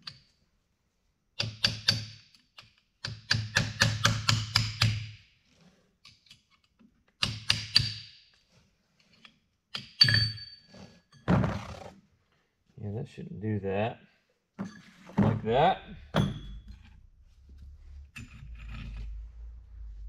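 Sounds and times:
hammer striking metal: 16.0s - 16.8s.

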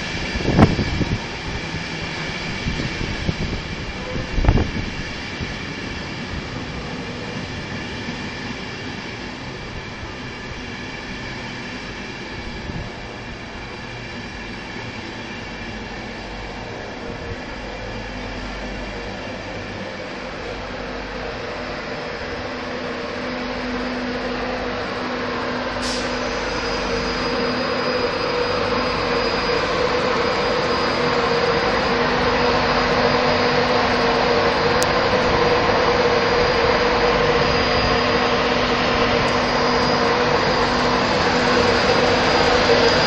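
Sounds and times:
electric train drone: 0.0s - 43.0s.

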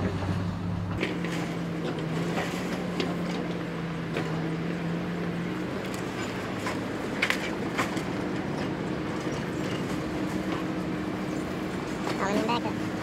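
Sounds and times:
excavator engine running: 0.0s - 13.0s.

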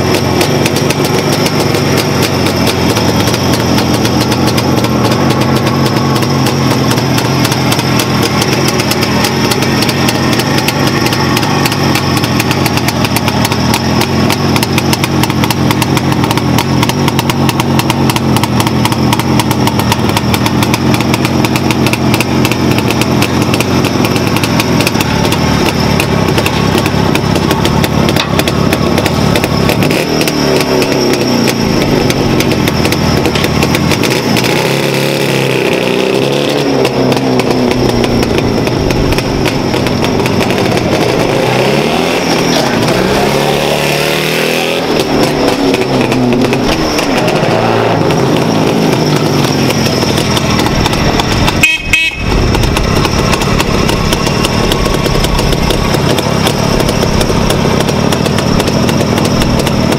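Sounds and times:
motorcycle engine idling and revving: 0.0s - 59.9s.

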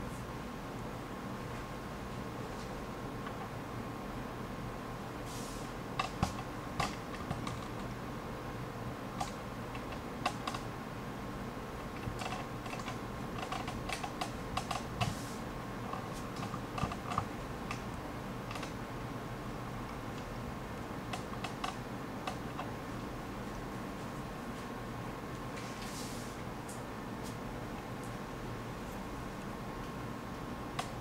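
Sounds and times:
steady hiss: 0.0s - 7.2s, 14.0s - 31.0s
faint hum: 0.0s - 31.0s.

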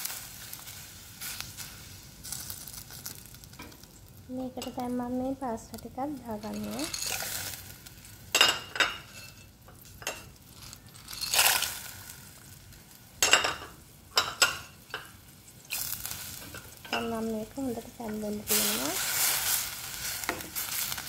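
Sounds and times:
sharp clinks and rustles: 6.4s - 7.5s, 8.4s - 11.9s.

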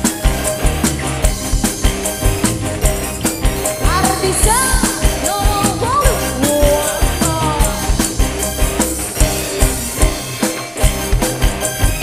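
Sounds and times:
drum beat: 0.0s - 12.0s
lead melody with bending notes: 0.0s - 12.0s
live band playing: 0.0s - 12.0s.

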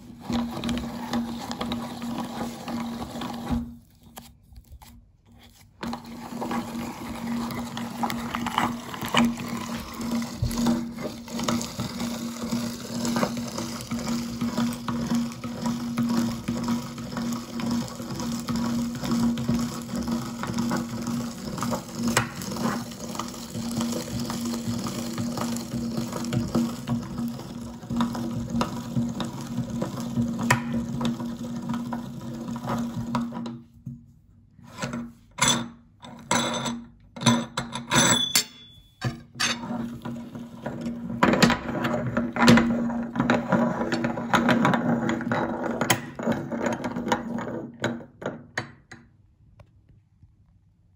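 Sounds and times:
meat grinder humming and squelching: 5.8s - 33.4s.

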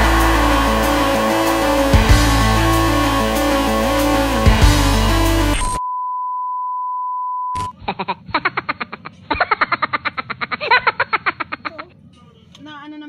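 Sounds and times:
background music: 0.0s - 5.8s
electronic beep tone: 4.4s - 7.7s.

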